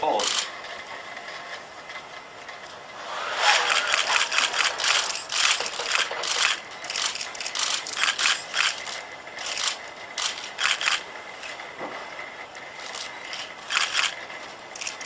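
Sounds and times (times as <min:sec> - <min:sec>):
robot joint motors whirring: 0:03.0 - 0:11.8, 0:12.8 - 0:15.0.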